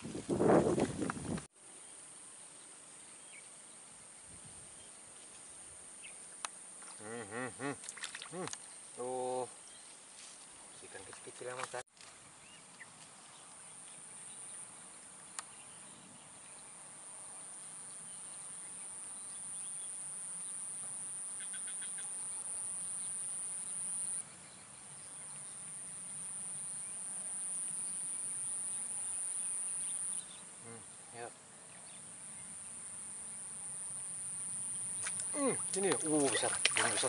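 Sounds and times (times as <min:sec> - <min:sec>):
insect buzzing trill: 0:04.2 - 0:09.5, 0:17.6 - 0:24.2, 0:25.4 - 0:37.0.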